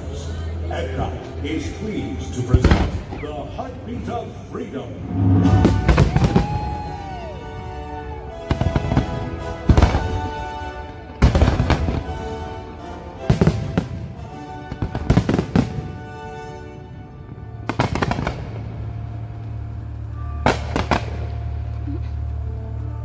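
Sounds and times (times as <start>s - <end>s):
show soundtrack music: 0.0s - 23.0s
steady low drone: 0.0s - 23.0s
fireworks bursting and crackling: 5.3s - 16.6s, 17.6s - 22.4s.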